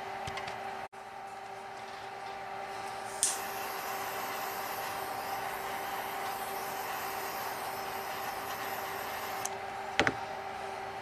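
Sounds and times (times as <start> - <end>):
steady hiss: 3.0 - 9.5.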